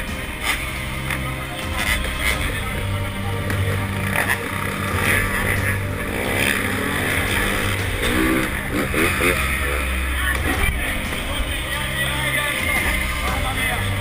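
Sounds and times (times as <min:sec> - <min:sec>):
motorcycle engine revving hard: 0:03.5 - 0:11.0.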